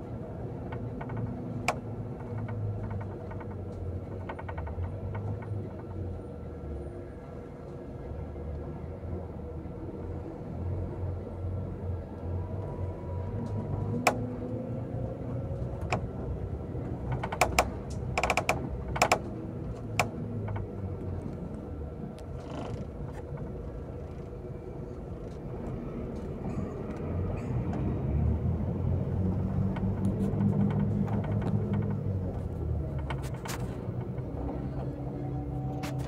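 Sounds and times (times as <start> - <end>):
bus engine and road rumble: 0.0 - 36.0
sharp clicks and rattles: 0.4 - 6.0, 15.4 - 27.8, 28.9 - 35.0.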